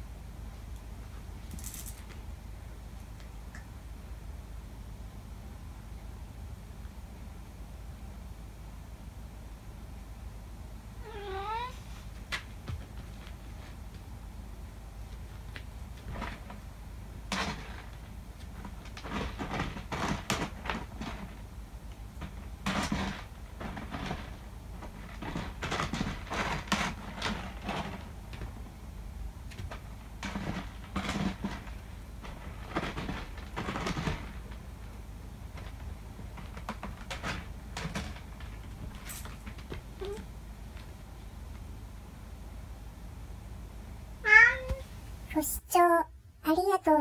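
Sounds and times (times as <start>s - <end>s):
cat scratching in litter: 15.1s - 41.0s.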